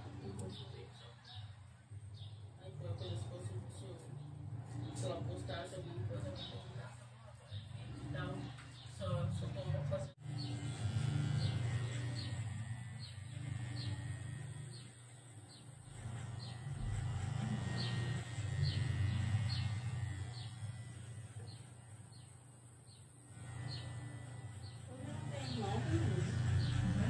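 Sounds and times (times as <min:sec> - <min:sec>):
electric hair trimmer buzzing: 0:07.8 - 0:27.0.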